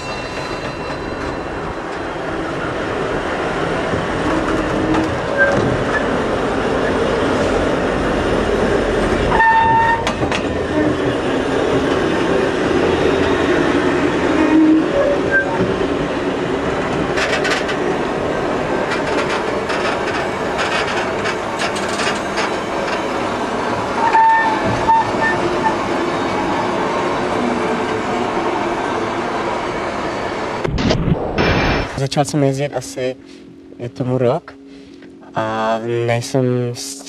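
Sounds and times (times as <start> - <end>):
train wheels rumbling on rails: 0.0 - 30.6
high-pitched wheel squeals: 4.8 - 6.1, 9.3 - 11.1, 14.3 - 15.6, 24.0 - 26.4.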